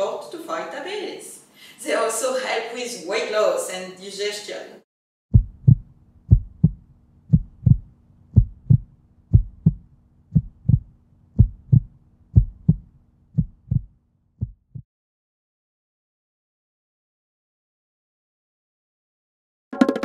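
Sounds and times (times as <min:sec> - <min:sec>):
faint steady hum: 0:00.0 - 0:03.2, 0:05.4 - 0:13.9
heartbeat thumps: 0:05.3 - 0:14.9.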